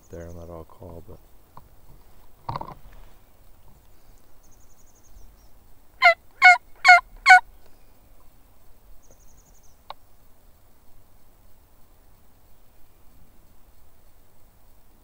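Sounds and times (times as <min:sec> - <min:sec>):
turkey call yelping: 0:06.0 - 0:07.4.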